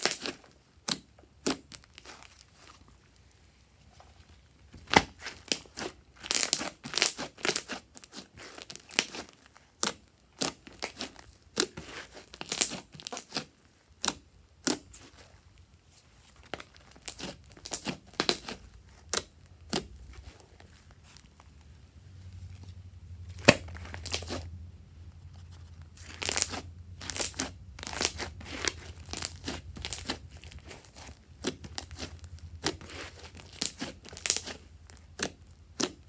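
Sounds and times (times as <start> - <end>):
slime squishing and popping: 4.8 - 13.4, 16.5 - 20.3, 23.4 - 24.4, 26.0 - 36.0.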